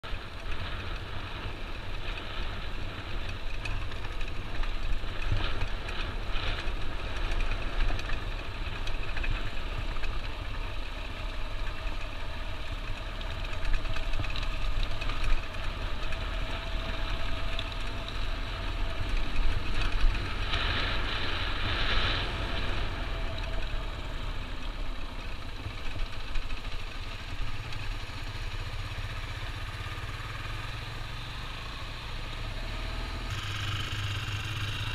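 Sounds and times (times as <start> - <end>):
motorcycle engine running: 0.0 - 34.9
wind rumble on microphone: 0.1 - 26.8.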